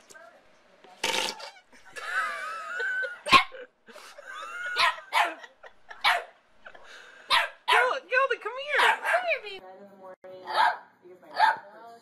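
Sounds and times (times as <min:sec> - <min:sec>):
puppy barking: 0:04.8 - 0:06.4, 0:07.3 - 0:08.0, 0:08.7 - 0:09.4, 0:10.5 - 0:11.7.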